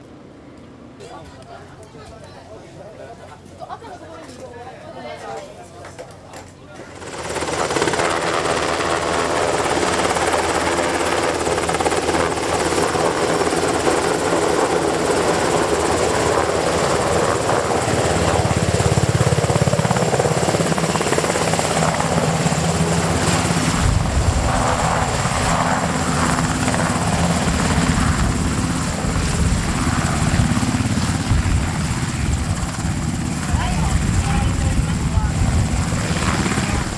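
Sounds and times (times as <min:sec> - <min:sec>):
helicopter rotor and engines: 0:00.0 - 0:36.9.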